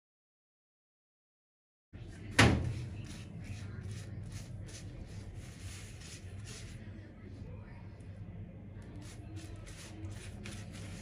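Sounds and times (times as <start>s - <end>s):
pastry brush swishing strokes: 2.6s - 6.9s, 8.9s - 11.0s.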